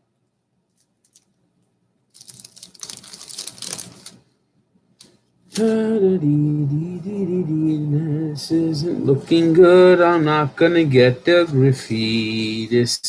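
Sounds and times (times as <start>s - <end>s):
wrapper crinkling and tearing: 2.1s - 4.3s
sing-song voice: 5.5s - 13.0s.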